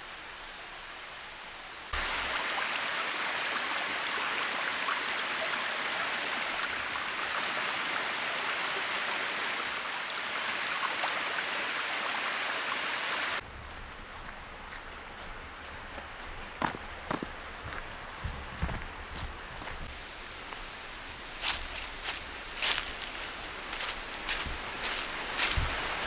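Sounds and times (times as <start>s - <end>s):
waterfall splashing over rock: 1.9s - 13.4s.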